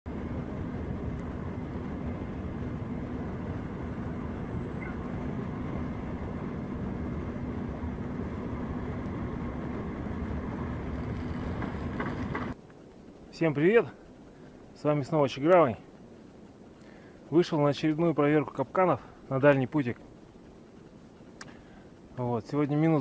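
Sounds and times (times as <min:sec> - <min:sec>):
railway yard rumble: 0:00.1 - 0:12.6
constant low hum: 0:00.1 - 0:23.0.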